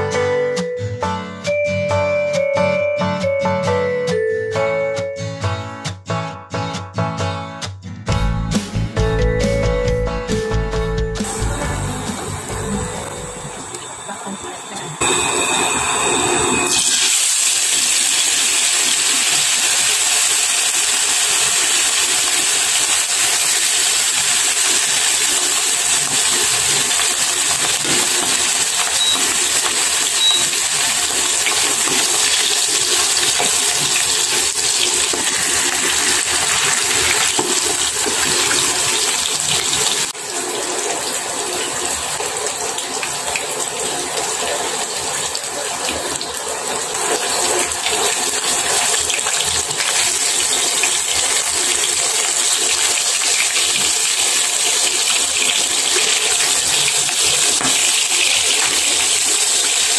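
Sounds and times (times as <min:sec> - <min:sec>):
fish sizzling in hot oil: 0:15.0 - 0:59.9.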